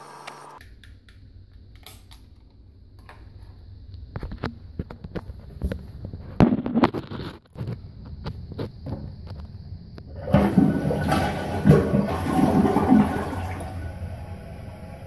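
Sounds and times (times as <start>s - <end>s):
fill valve shutting off: 10.1s - 15.0s
toilet tank refilling hiss: 10.1s - 15.0s.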